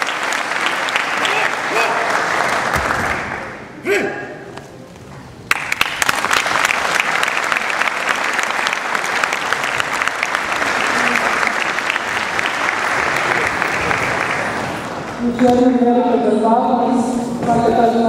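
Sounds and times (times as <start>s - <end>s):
audience applauding: 0.0s - 3.6s, 5.5s - 15.2s.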